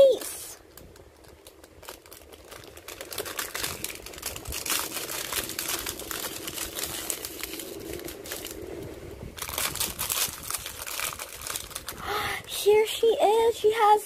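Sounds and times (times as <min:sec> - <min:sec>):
foil wrapper crinkling: 0:00.0 - 0:13.6.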